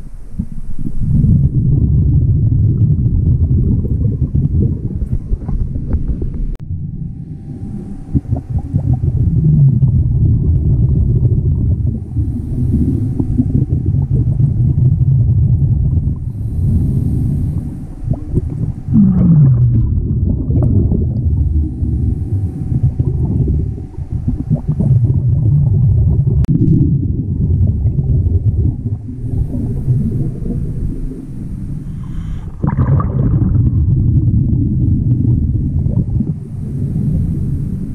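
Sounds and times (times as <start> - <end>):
exhaled bubbles rumbling underwater: 0.0 - 37.9
regulator inhale hiss: 12.0 - 14.1, 16.2 - 19.0, 29.2 - 32.6, 36.5 - 37.9.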